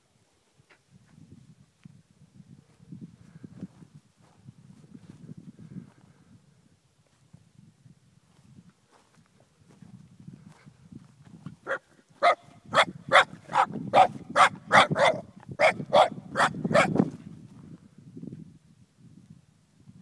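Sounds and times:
dog barking: 11.6s - 17.0s.

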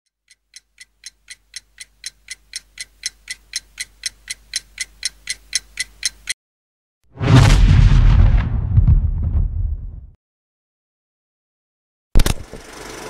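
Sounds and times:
clock ticking: 0.1s - 6.4s.

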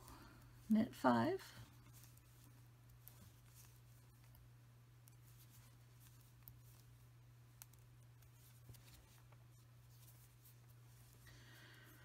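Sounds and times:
low steady hum: 0.0s - 12.0s
knitting needles ticking: 7.6s - 8.5s.

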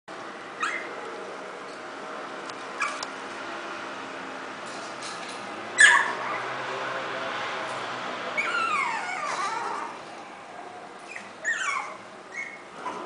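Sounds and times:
puppy whining: 0.6s - 1.0s, 2.8s - 3.1s, 5.8s - 6.5s, 8.4s - 13.0s.

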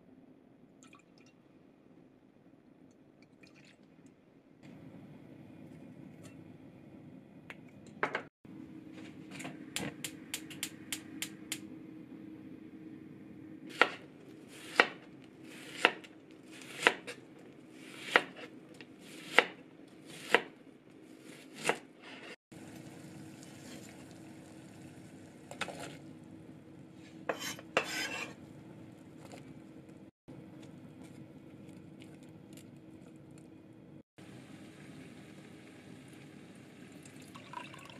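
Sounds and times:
knife chopping on cutting board: 14.6s - 17.2s, 17.9s - 20.6s, 21.4s - 22.3s.

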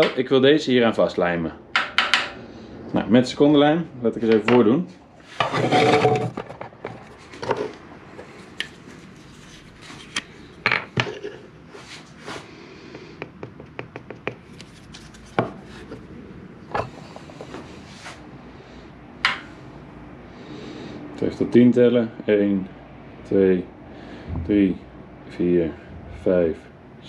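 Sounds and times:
sharp knocks on workbench: 1.8s - 2.4s.

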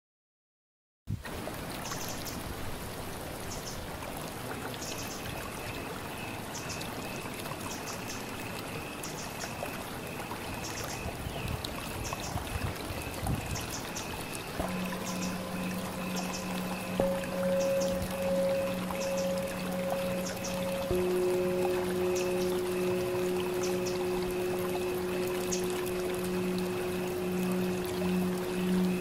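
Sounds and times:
rushing running water: 1.1s - 29.0s
high chirps: 13.5s - 29.0s
thin high tone: 13.5s - 29.0s.

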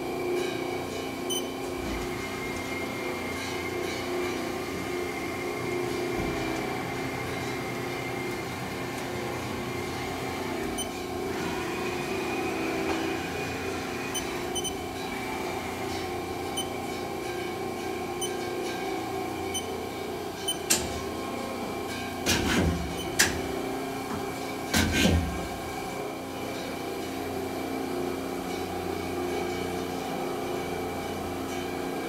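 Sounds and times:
thin machine whine: 0.0s - 22.2s.

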